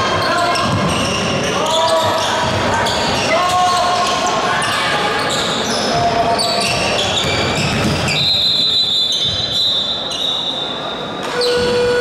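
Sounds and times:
sneakers squeaking: 0:00.0 - 0:12.0
basketball bouncing: 0:06.7 - 0:08.2.

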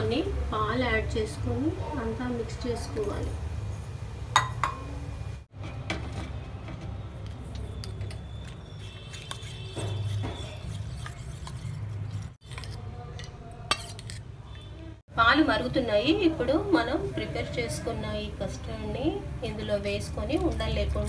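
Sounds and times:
spoon clinking on bowl: 0:04.4 - 0:04.9
spoon scraping metal bowl: 0:06.8 - 0:14.7.

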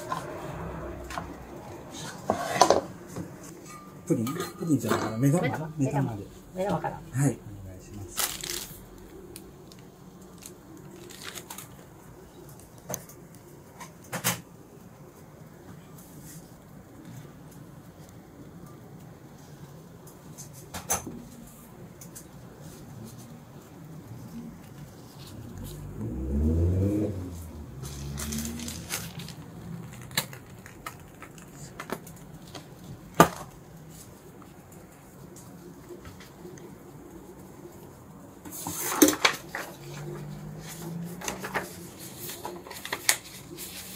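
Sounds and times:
plastic bag handling noise: 0:07.9 - 0:13.2, 0:27.3 - 0:34.2.

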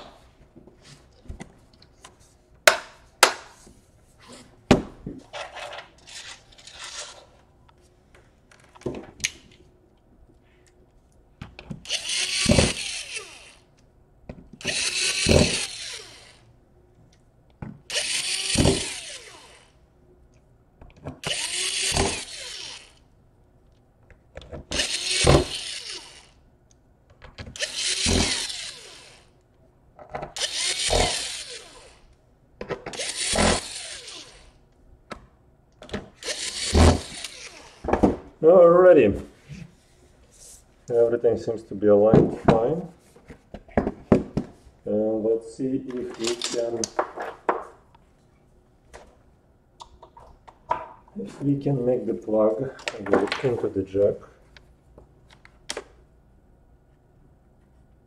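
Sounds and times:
drill driving screws into metal: 0:11.8 - 0:13.7, 0:14.6 - 0:16.4, 0:17.9 - 0:19.8, 0:21.2 - 0:23.0, 0:24.6 - 0:26.4, 0:27.4 - 0:29.3, 0:30.3 - 0:32.0, 0:32.8 - 0:34.6, 0:35.9 - 0:38.0.

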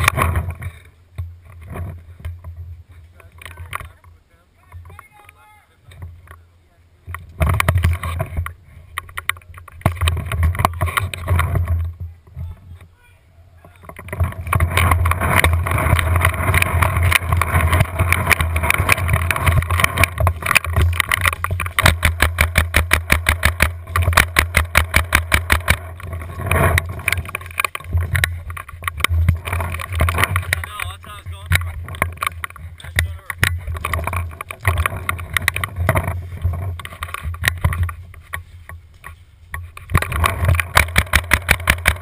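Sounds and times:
camera handling rumble and rattle: 0:00.0 - 0:04.1, 0:07.1 - 0:12.9, 0:13.8 - 0:42.0
sharp clicks: 0:13.8 - 0:38.4, 0:39.0 - 0:42.0.

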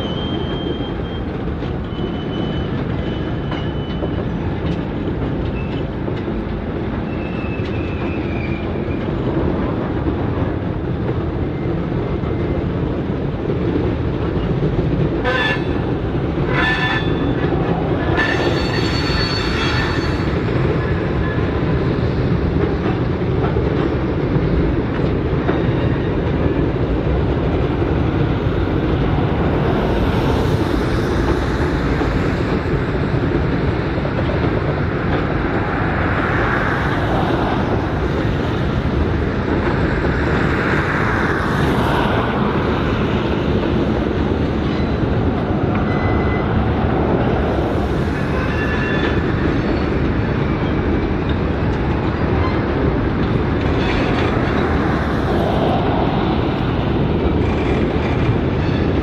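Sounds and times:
train wheels rumbling on rails: 0:00.0 - 0:59.0
train horn: 0:15.2 - 0:15.9, 0:16.5 - 0:17.4, 0:18.2 - 0:20.3.

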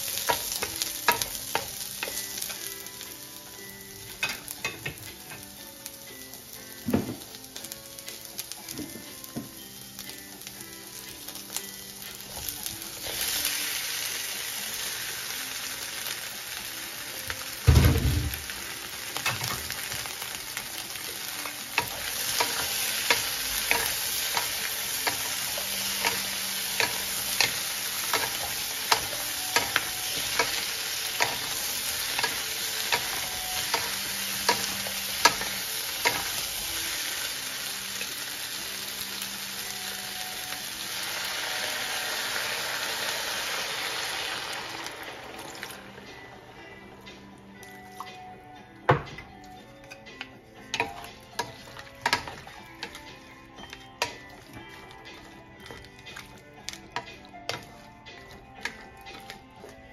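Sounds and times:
shrimp sizzling in wok: 0:00.0 - 0:47.9, 0:50.1 - 0:59.8
heavy thump: 0:17.7 - 0:18.4.

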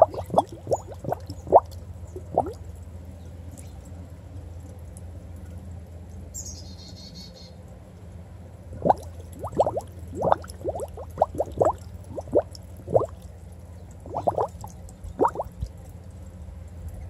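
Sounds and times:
bubbling blips: 0:00.0 - 0:02.6, 0:08.7 - 0:13.3, 0:14.0 - 0:15.7
steady low hum: 0:00.0 - 0:06.4, 0:07.5 - 0:17.0.

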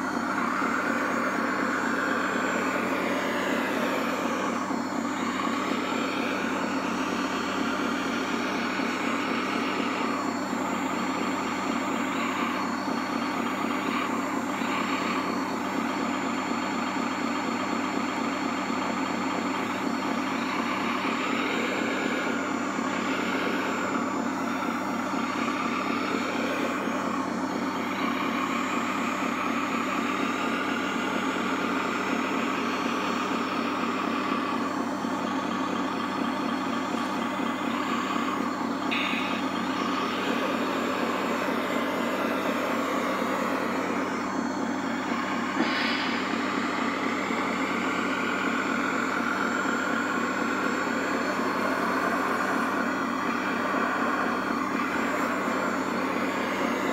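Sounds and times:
model motor whines: 0:00.0 - 0:56.9
simulated diesel engine sound: 0:00.0 - 0:56.9.

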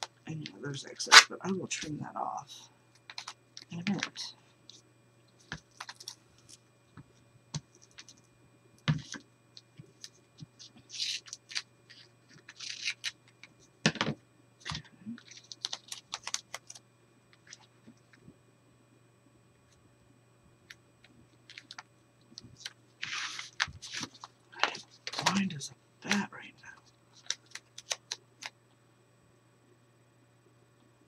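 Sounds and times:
paper rustling: 0:05.4 - 0:06.6, 0:09.9 - 0:13.6, 0:14.6 - 0:16.8, 0:22.4 - 0:25.5, 0:27.1 - 0:28.5.

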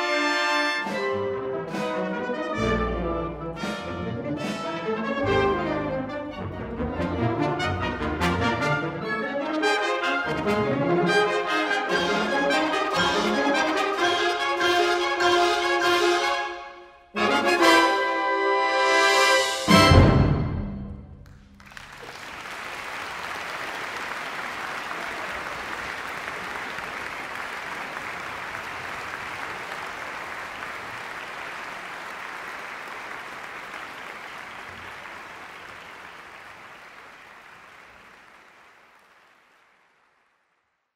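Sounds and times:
audience applauding: 0:21.2 - 0:40.7.

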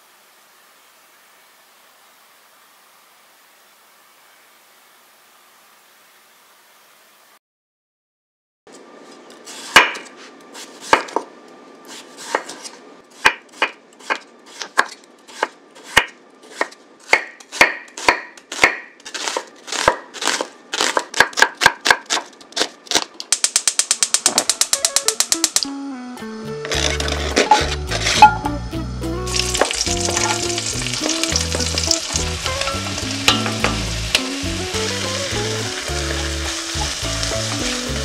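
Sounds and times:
knife chopping on cutting board: 0:09.7 - 0:11.3, 0:11.9 - 0:22.2.

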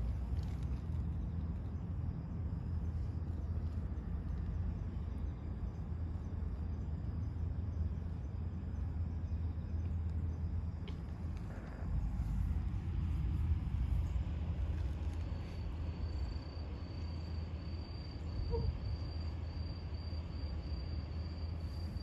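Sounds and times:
small ticks: 0:00.0 - 0:02.0, 0:09.7 - 0:17.3
insects trilling: 0:00.0 - 0:22.0
low outdoor rumble: 0:00.0 - 0:22.0.

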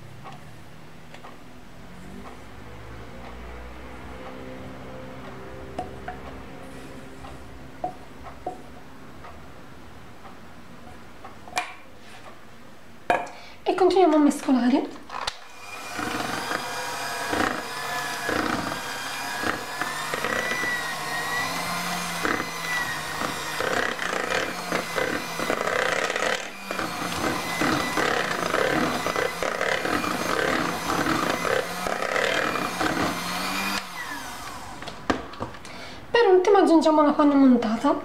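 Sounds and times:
electric hand mixer running: 0:15.2 - 0:35.2.

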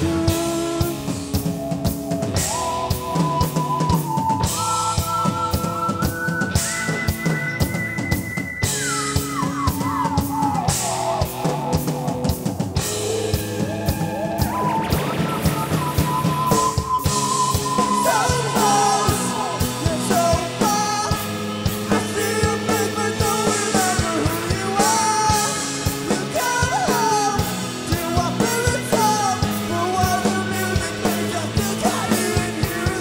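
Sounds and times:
lead vocal singing: 0:00.0 - 0:01.5, 0:12.9 - 0:33.0
bass guitar: 0:00.0 - 0:33.0
drum kit beat: 0:00.0 - 0:33.0
electric guitar: 0:00.0 - 0:33.0
keyboard: 0:00.0 - 0:33.0.

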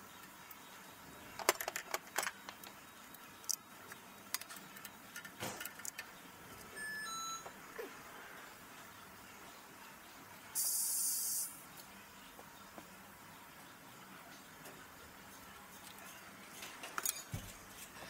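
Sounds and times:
two-pitched tone: 0:06.8 - 0:07.6
metal tools clinking on engine parts: 0:16.5 - 0:17.5.

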